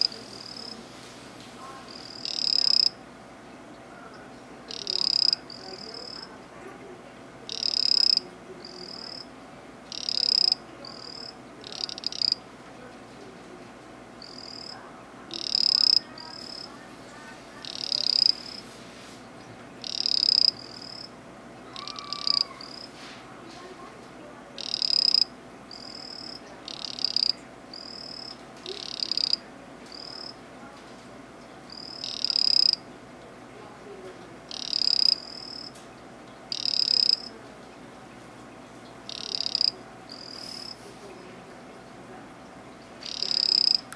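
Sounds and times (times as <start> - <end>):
frog buzzing trills: 0.0 - 0.8, 1.9 - 3.0, 4.7 - 6.3, 7.5 - 9.3, 9.9 - 12.4, 14.2 - 16.8, 17.6 - 18.6, 19.8 - 21.1, 21.7 - 22.9, 24.6 - 30.4, 31.7 - 32.9, 34.5 - 35.8, 36.5 - 37.3, 39.1 - 40.8, 43.0 - 43.9.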